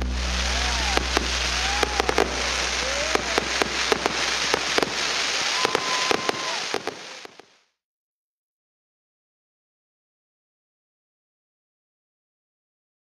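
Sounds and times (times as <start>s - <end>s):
fireworks popping: 0.0s - 7.6s
whistling fireworks: 0.0s - 7.6s
fireworks crackling: 0.0s - 7.7s.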